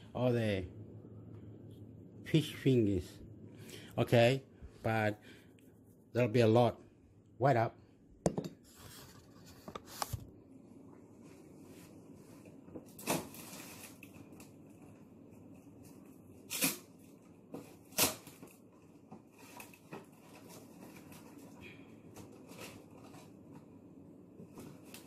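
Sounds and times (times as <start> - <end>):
kitchen knocks and clatters: 8.2 - 8.7.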